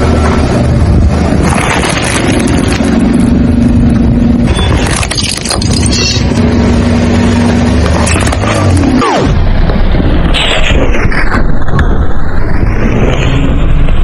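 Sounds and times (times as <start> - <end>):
car engine droning: 0.0 - 14.0
tyres crunching small objects: 4.7 - 6.4.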